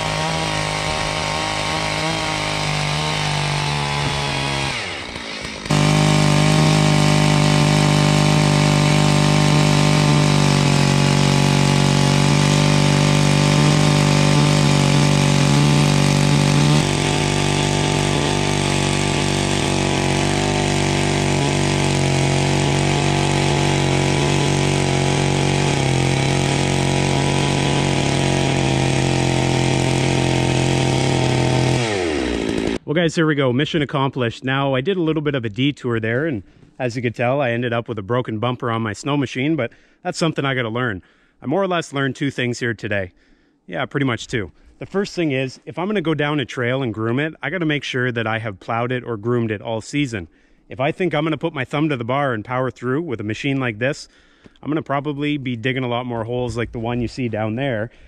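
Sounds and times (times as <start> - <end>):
chainsaw engine running under load: 0.0 - 32.8.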